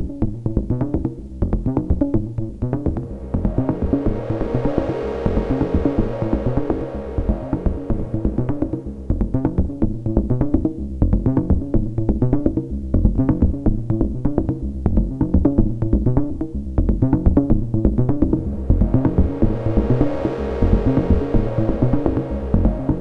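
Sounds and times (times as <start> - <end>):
low synth bass notes: 0.0 - 23.0
synthesizer percussive hits: 2.8 - 9.8, 18.0 - 23.0.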